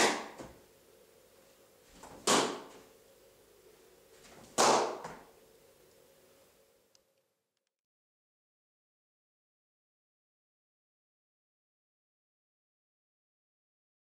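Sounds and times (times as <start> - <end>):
foot slapping palm: 2.0 - 2.8, 4.6 - 5.2.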